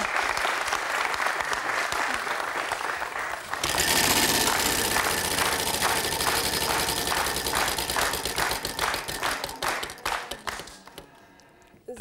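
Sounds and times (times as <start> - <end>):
prize wheel clicking: 3.6 - 11.1.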